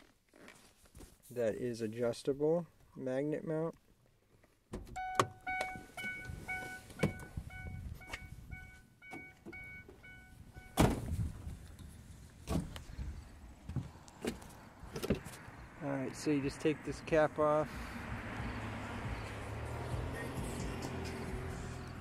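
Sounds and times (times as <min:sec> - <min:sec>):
car door warning chime: 0:04.9 - 0:11.0
car door thump: 0:07.0 - 0:07.4, 0:10.7 - 0:11.4, 0:12.4 - 0:12.8.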